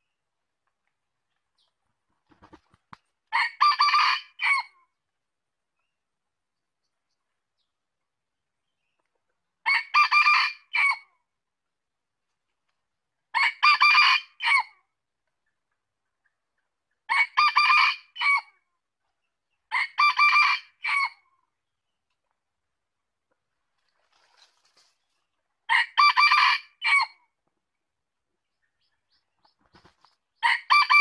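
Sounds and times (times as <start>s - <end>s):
rooster crowing: 30.4s - 31.0s.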